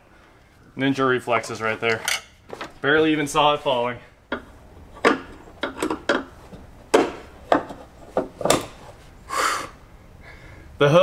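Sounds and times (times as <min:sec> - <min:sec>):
metal clicks and knocks: 0:04.3 - 0:08.8.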